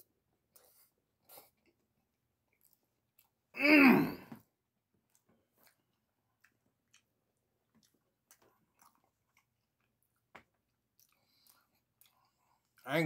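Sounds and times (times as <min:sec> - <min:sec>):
person chewing: 0:02.5 - 0:03.4, 0:05.0 - 0:12.9.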